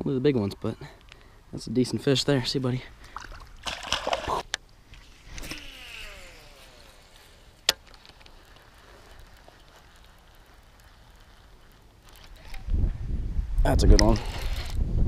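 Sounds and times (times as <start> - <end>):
fish splashing into water: 3.1 - 4.5
faint reeling: 4.3 - 12.6
fishing reel spool whirring: 4.8 - 12.4.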